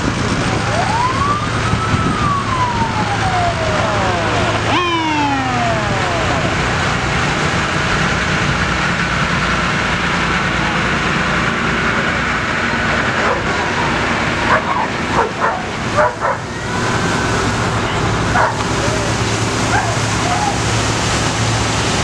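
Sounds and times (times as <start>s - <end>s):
fire truck engines driving past: 0.0s - 22.0s
siren winding down: 0.5s - 7.8s, 13.3s - 20.6s
dog barking: 14.5s - 16.4s, 18.4s - 18.6s.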